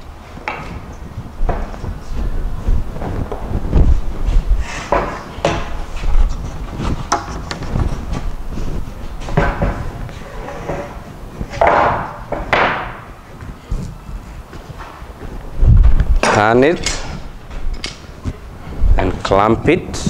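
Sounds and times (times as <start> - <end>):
board scraping on wood: 3.2 - 15.0.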